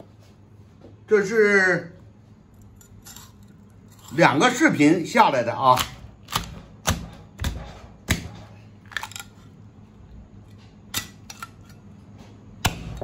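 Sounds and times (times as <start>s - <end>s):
cleaver chopping on wooden block: 5.8s - 8.4s.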